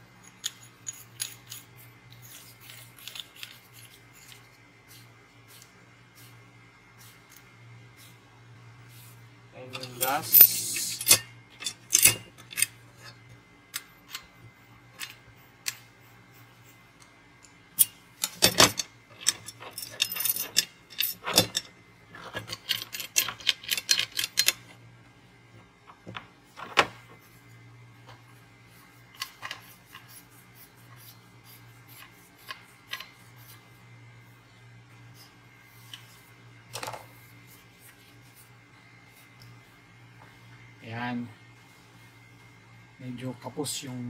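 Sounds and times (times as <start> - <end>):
steady low hum: 0.0 - 44.0
metal shovel parts clicking: 9.6 - 14.2, 17.8 - 24.7.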